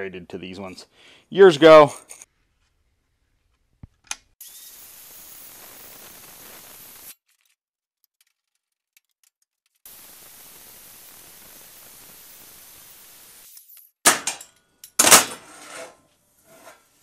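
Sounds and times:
circular saw hissing: 0:04.4 - 0:07.2, 0:09.9 - 0:13.7.

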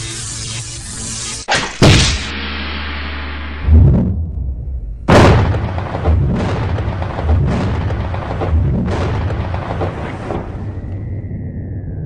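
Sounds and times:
cartoon explosion booms: 0:01.5 - 0:02.3, 0:03.6 - 0:10.8.

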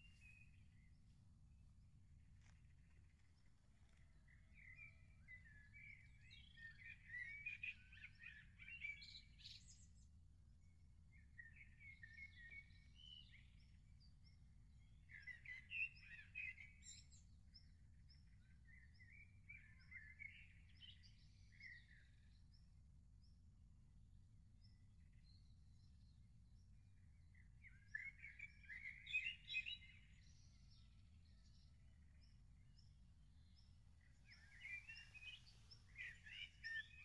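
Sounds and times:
songbirds warbling: 0:33.6 - 0:37.0.

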